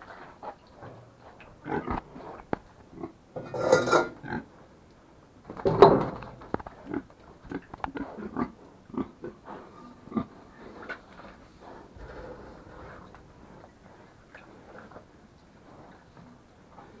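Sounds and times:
pigs grunting: 1.6s - 4.5s, 6.8s - 10.8s
knocks and clatter: 5.5s - 6.8s.

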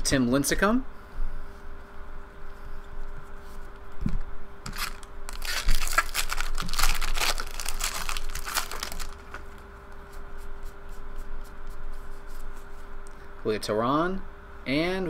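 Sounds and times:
foil wrapper crinkling and tearing: 4.7s - 9.6s.

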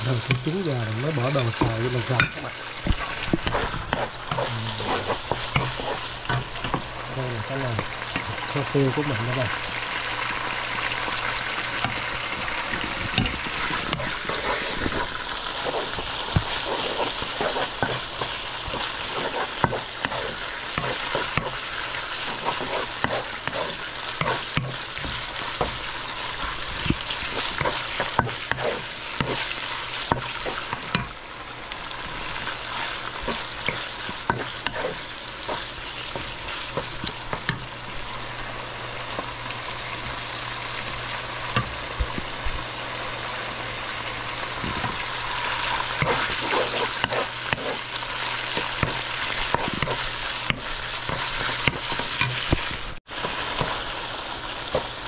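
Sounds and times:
food sizzling in hot oil: 0.0s - 55.0s
spatula scraping a pan: 0.2s - 6.9s, 11.7s - 31.2s, 32.1s - 37.6s, 44.6s - 53.8s.

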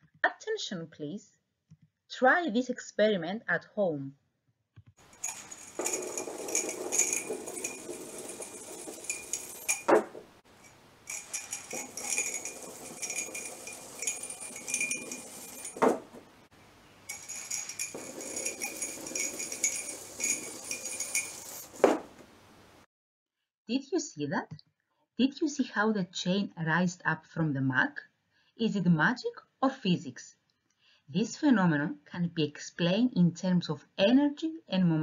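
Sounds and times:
metal bead chain rattling: 5.0s - 16.4s, 17.1s - 22.2s
sharp clack of chain: 5.2s - 16.4s, 17.1s - 22.2s.

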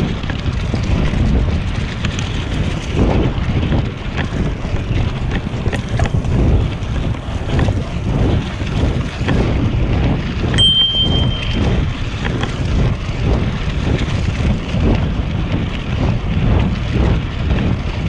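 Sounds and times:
bicycle tyre rumble: 0.0s - 18.0s
wind buffeting microphone: 0.0s - 18.0s
high ringing tone: 10.6s - 12.0s.

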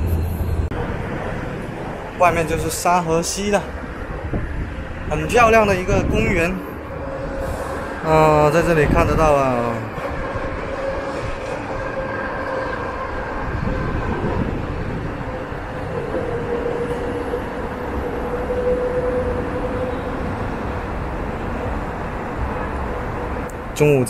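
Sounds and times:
vehicle humming drone: 0.0s - 2.2s
city traffic rumble: 0.0s - 24.0s.

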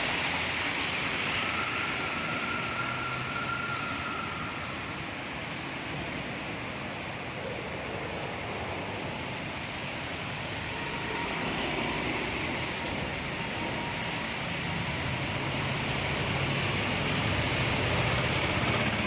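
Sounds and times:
floodwater rushing and splashing: 0.0s - 4.7s.

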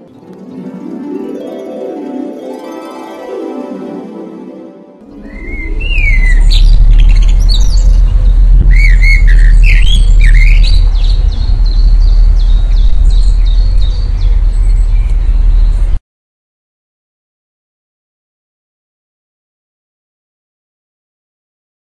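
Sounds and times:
loud steady low rumble: 5.0s - 16.0s
birds squawking and chirping: 5.1s - 15.9s.

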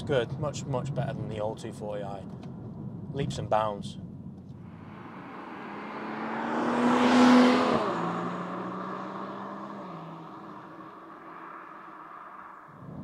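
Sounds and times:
car driving past: 4.6s - 13.0s.

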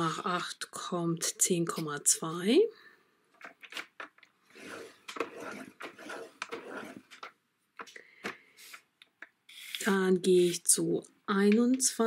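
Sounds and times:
blade scraping along paper: 4.5s - 7.2s.

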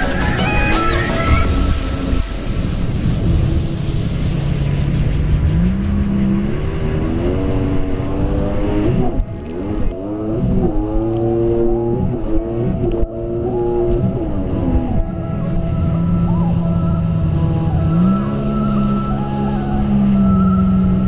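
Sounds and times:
jet ski engine running: 0.0s - 21.0s
wind: 0.0s - 21.0s.

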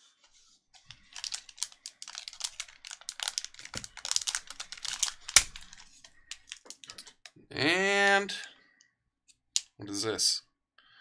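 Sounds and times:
foil pack crinkling torn open: 1.1s - 7.3s.

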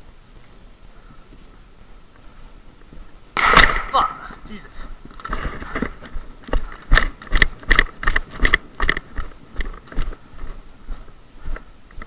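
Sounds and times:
running footsteps on leaves: 4.2s - 12.0s.

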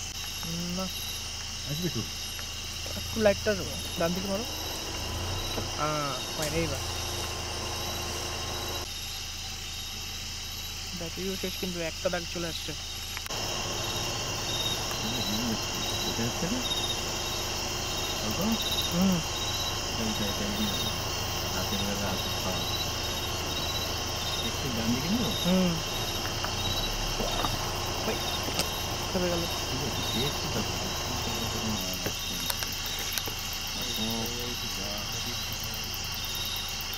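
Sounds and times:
crickets and insects trilling: 0.0s - 36.9s
vehicle engine idling: 0.0s - 36.9s.

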